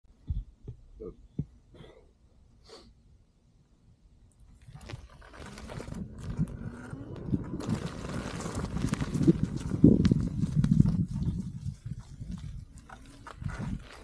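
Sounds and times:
wheel rolling over dry leaves: 4.6 - 14.0.

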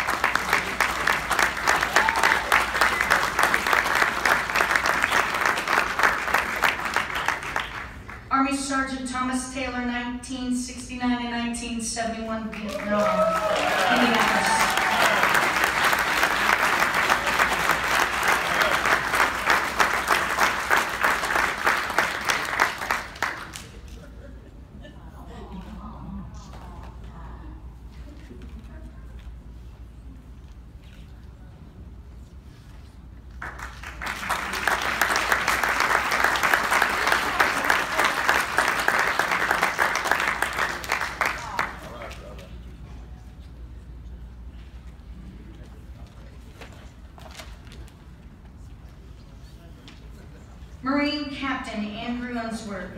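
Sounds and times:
audience applauding: 0.0 - 8.3, 12.7 - 23.8, 33.4 - 42.3.

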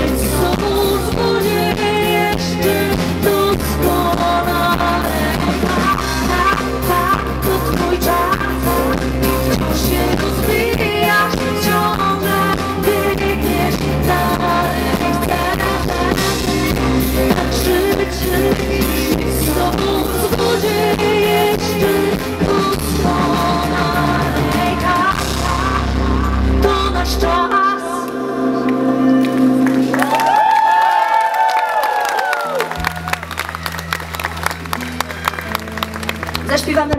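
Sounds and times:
woman singing into microphone: 0.0 - 29.3
pop-rock band playing: 0.0 - 31.5, 32.2 - 36.9.

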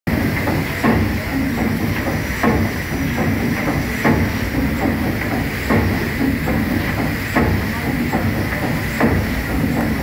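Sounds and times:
steam engine rhythmic beat: 0.1 - 10.0
steam hiss: 0.1 - 10.0.

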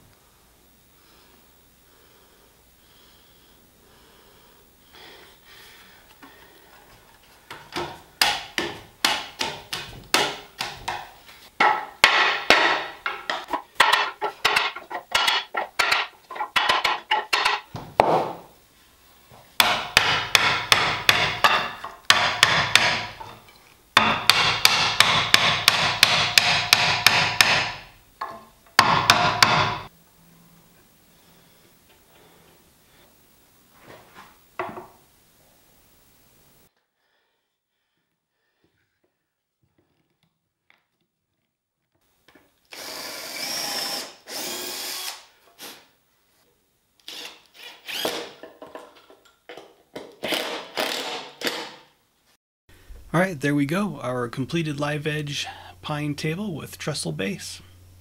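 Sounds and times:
mallet knocking wood: 7.7 - 18.4, 19.6 - 23.2, 24.0 - 29.9.

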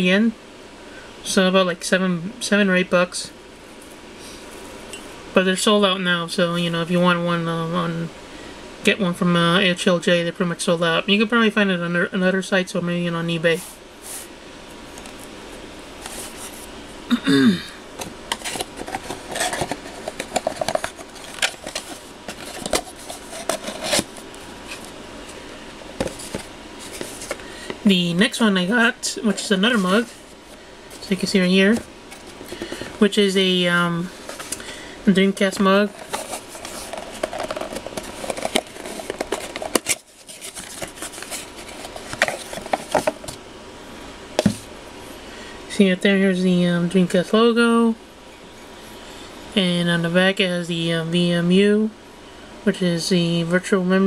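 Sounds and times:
mug and cardboard box handled: 18.3 - 25.0, 26.0 - 27.4, 35.9 - 43.4.

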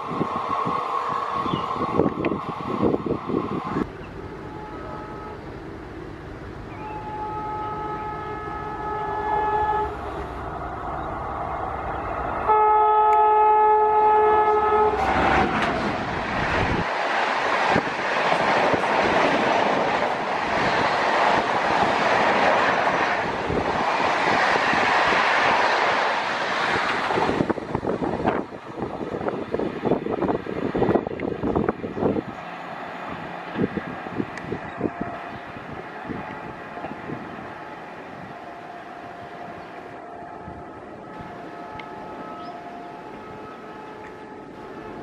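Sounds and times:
train passing at speed: 0.0 - 45.0
locomotive horn blasts: 4.2 - 5.5, 6.7 - 10.0, 12.4 - 15.7, 34.8 - 35.4, 38.2 - 45.0.

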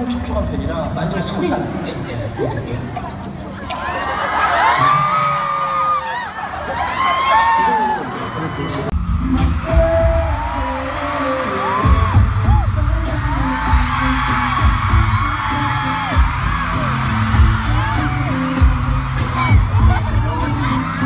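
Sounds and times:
crowd screaming and cheering: 3.3 - 21.0
bass-heavy pop music: 8.9 - 21.0.

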